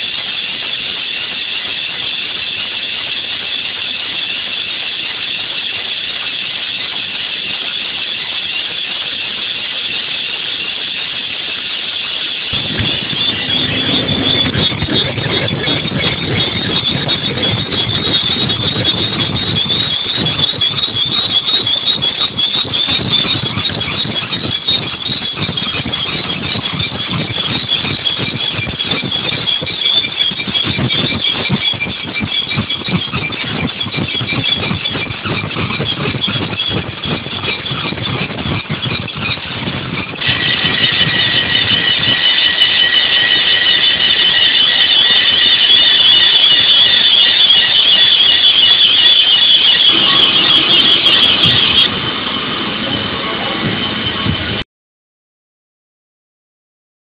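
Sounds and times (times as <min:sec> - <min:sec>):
drills squealing in metal: 0:00.0 - 0:54.6
low machine rumble: 0:12.5 - 0:23.7, 0:40.0 - 0:54.6.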